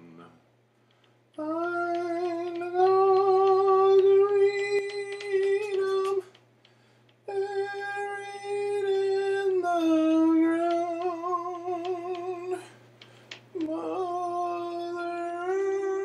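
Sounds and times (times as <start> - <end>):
person humming long notes: 1.4 - 6.3, 7.3 - 12.7, 13.6 - 16.0.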